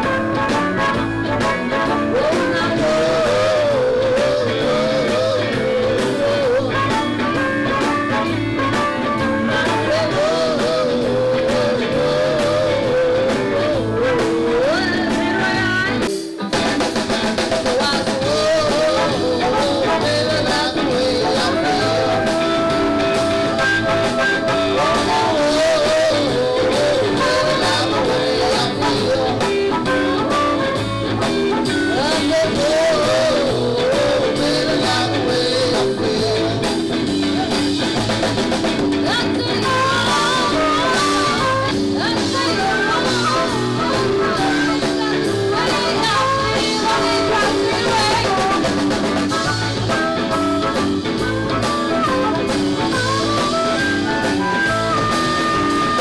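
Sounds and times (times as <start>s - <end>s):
blues band playing: 0.0s - 56.0s
woman singing: 1.8s - 16.1s, 17.7s - 22.8s, 24.6s - 30.8s, 31.6s - 36.7s, 39.0s - 49.0s.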